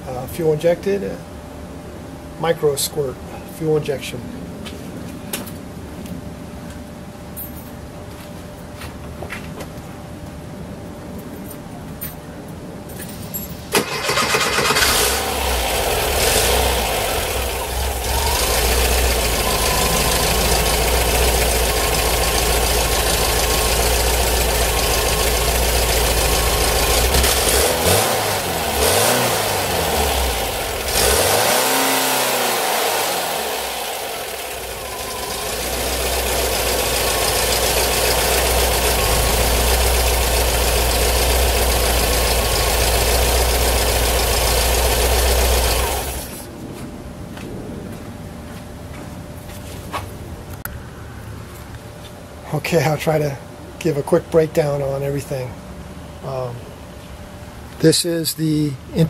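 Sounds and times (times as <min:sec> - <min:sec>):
car engine starting and idling: 0:13.6 - 0:46.5
engine revving: 0:13.8 - 0:46.4.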